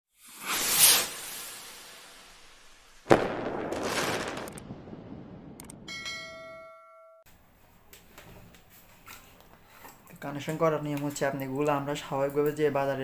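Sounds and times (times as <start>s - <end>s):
sharp hit with whoosh: 0.2s - 3.7s
clicks: 5.6s - 5.8s
ringing bell chime: 5.9s - 7.3s.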